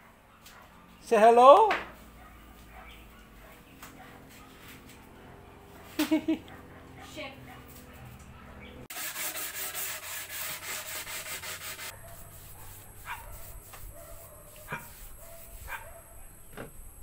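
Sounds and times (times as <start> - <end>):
dog yelping: 2.1 - 8.9, 11.9 - 16.4
broom sweeping hard floor: 8.9 - 15.8.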